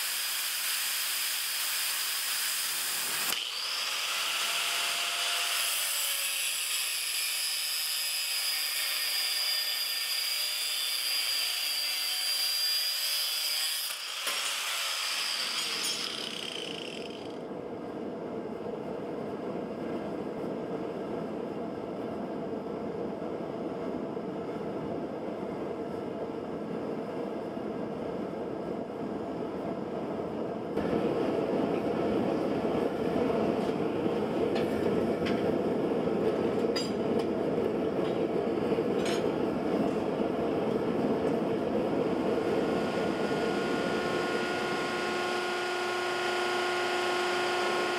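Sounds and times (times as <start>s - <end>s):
angle grinder cutting steel: 0.0s - 17.4s, 42.7s - 47.9s
gas burner roaring: 30.8s - 47.9s.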